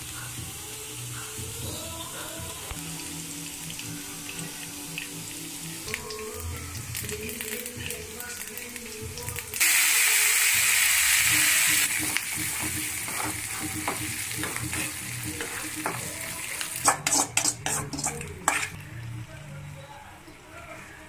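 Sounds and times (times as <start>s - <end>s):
leaves sizzling in hot oil: 0.0s - 18.9s
metal spoon scraping pan: 12.0s - 16.2s, 16.8s - 18.8s.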